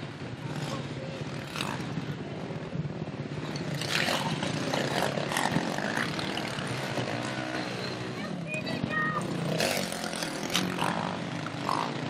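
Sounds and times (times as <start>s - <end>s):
quad engines revving: 0.0s - 12.0s.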